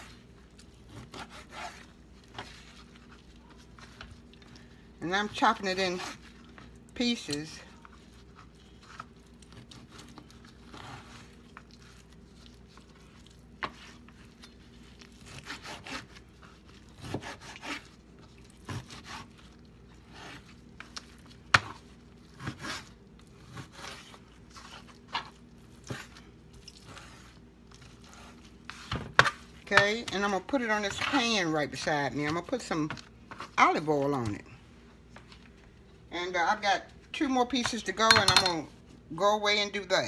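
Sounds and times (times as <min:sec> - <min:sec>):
knife scraping and rubbing: 0:00.9 - 0:03.1, 0:15.2 - 0:16.2.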